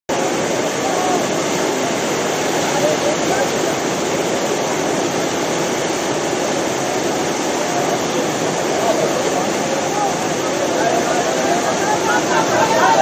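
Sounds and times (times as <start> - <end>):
whitewater rushing: 0.1 - 13.0.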